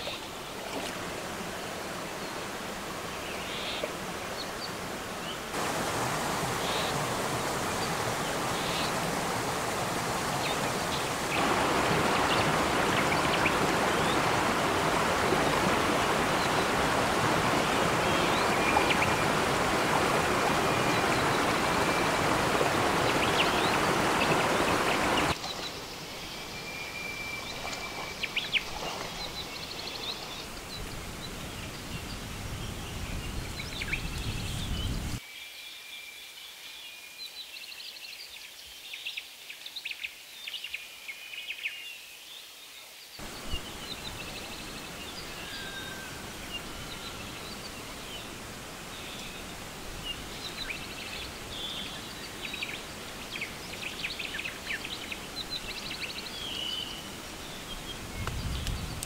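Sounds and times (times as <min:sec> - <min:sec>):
water splashing from wading: 0:00.0 - 0:02.9, 0:05.5 - 0:25.9, 0:27.0 - 0:31.4
birds chirping: 0:00.0 - 0:35.2, 0:43.2 - 0:59.0
stream rushing over rocks: 0:00.0 - 0:35.2, 0:43.2 - 0:59.0.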